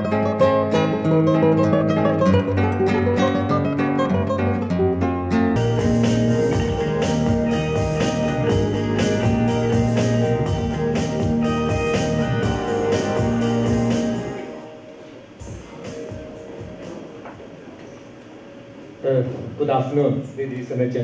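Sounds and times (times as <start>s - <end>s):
instrumental guitar music with beat: 0.0s - 14.5s.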